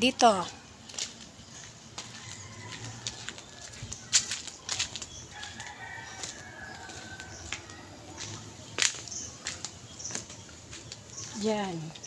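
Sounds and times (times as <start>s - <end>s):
rooster crowing faintly: 2.0s - 4.4s.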